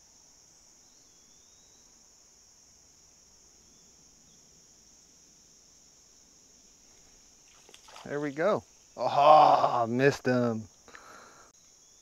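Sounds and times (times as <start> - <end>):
insects chirping: 0.0 - 12.0
bird chirp: 0.8 - 2.0.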